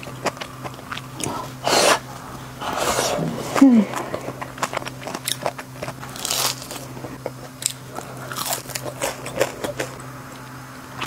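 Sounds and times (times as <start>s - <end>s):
faint low hum: 0.0s - 11.0s
crunching fried food: 3.6s - 10.1s.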